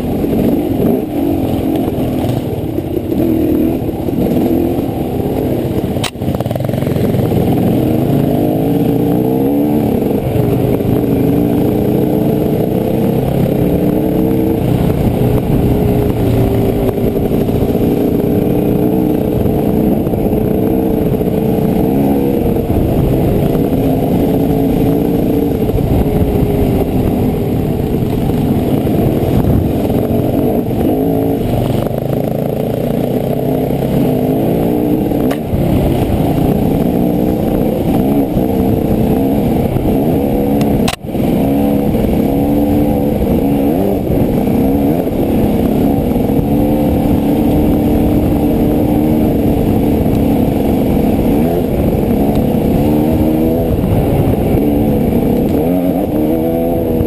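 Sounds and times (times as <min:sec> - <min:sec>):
dirt bike engine running hard: 0:00.0 - 0:57.0.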